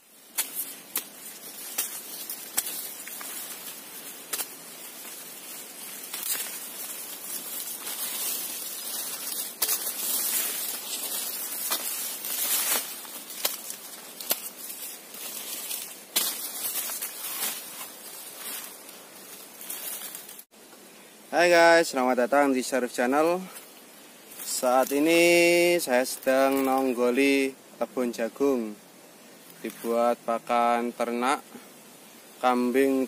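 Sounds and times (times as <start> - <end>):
dry leaves rustling: 0.0 - 20.6, 22.4 - 33.0
stalks snapping: 0.2 - 18.8.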